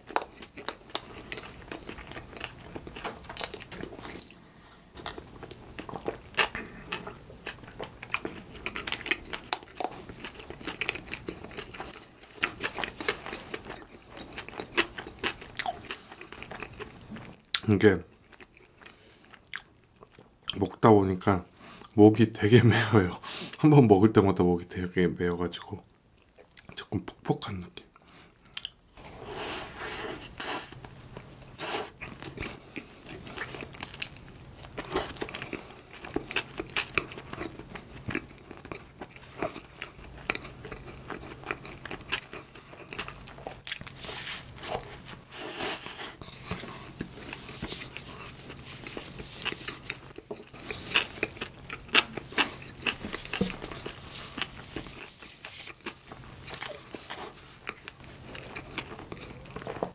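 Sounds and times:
chewing soft bread: 0.0s - 22.2s, 25.7s - 59.9s.

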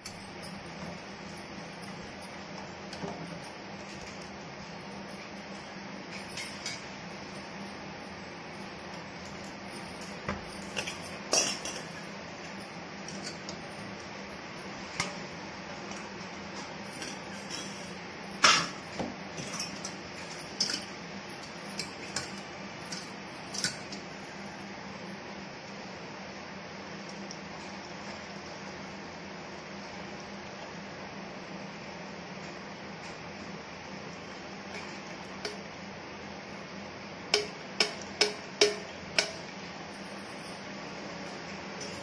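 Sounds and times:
steady low hum: 0.0s - 42.0s
steel kitchen vessels clinking: 10.3s - 12.1s, 16.9s - 24.0s, 37.4s - 39.5s.

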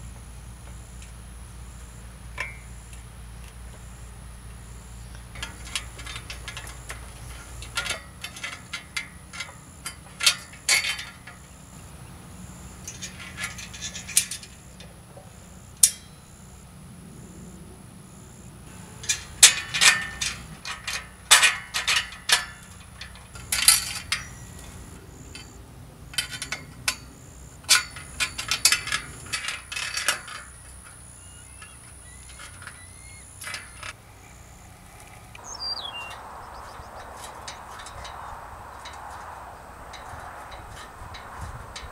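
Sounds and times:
metal clinks and clicks: 5.1s - 11.5s, 18.8s - 34.0s.

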